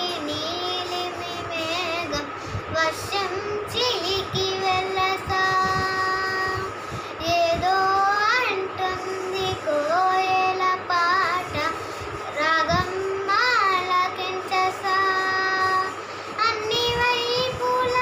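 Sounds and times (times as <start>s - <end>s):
girl breathing: 2.4s - 2.7s, 6.8s - 7.2s, 16.0s - 16.4s.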